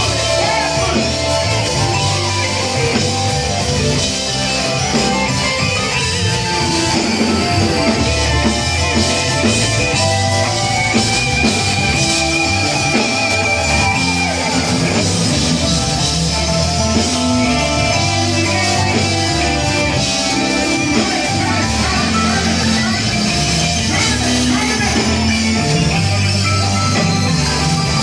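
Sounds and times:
bass guitar: 0:00.0 - 0:28.0
drum kit: 0:00.0 - 0:28.0
electric guitar: 0:00.0 - 0:28.0
keyboard: 0:00.0 - 0:28.0.

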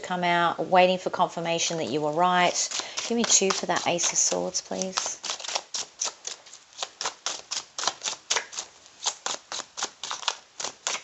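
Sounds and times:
cards being shuffled: 0:02.5 - 0:11.0.

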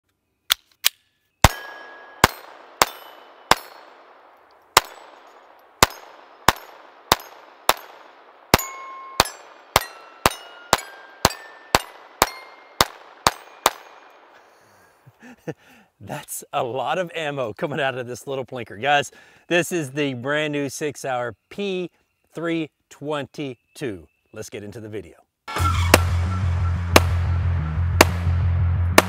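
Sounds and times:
steel target ringing: 0:01.4 - 0:04.1, 0:04.8 - 0:14.2, 0:25.5 - 0:28.3
pistol shots: 0:01.4 - 0:14.4, 0:26.9 - 0:27.2.

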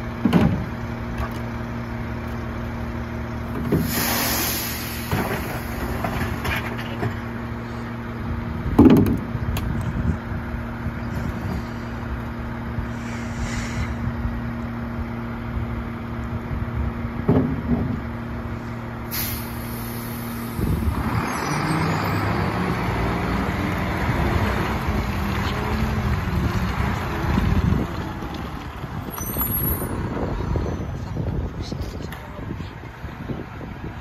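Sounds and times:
air brake hiss: 0:03.8 - 0:05.8, 0:12.9 - 0:14.0, 0:19.1 - 0:20.7
truck engine revving: 0:19.2 - 0:30.8.

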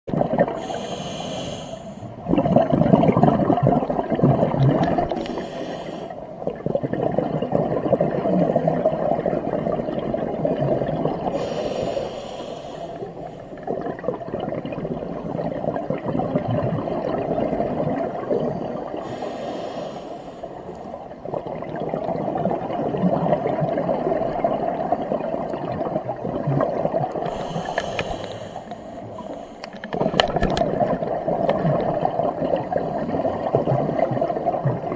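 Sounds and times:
exhaled air bubbling: 0:00.1 - 0:34.9
regulator inhalation hiss: 0:00.6 - 0:02.1, 0:05.2 - 0:06.1, 0:11.3 - 0:13.3, 0:19.0 - 0:20.7, 0:27.3 - 0:29.7.

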